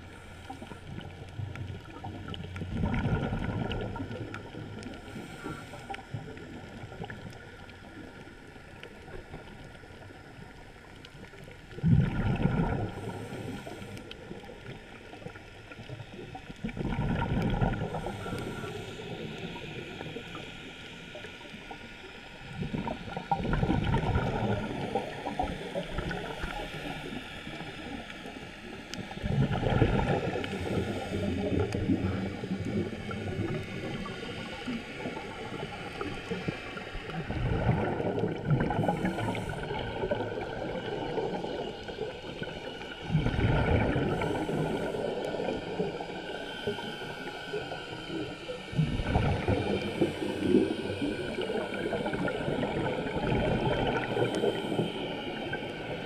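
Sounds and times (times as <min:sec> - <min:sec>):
exhaled bubbles gushing underwater: 0:00.0 - 0:56.0
diver breathing through regulator: 0:04.8 - 0:06.8, 0:12.3 - 0:14.4, 0:16.9 - 0:21.1, 0:29.2 - 0:42.5, 0:43.1 - 0:56.0.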